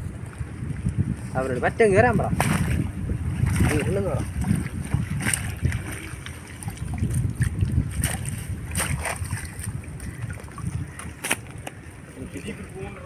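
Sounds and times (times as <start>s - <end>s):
stream water sloshing and splashing: 0.0s - 13.0s
short splashes: 2.3s - 11.5s.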